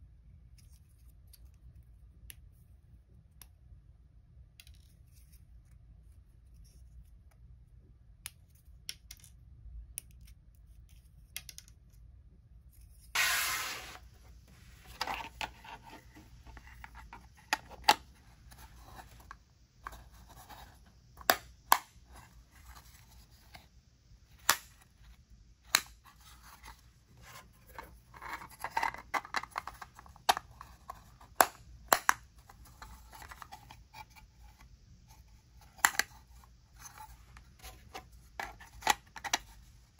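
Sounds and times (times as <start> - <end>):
plastic scraping and rubbing: 13.2 - 20.9, 26.0 - 31.6, 32.3 - 39.8.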